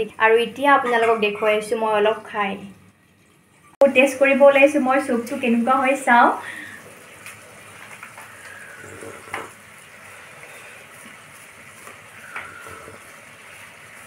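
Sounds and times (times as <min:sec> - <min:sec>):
person slurping soup: 0:08.5 - 0:09.5, 0:12.2 - 0:13.0.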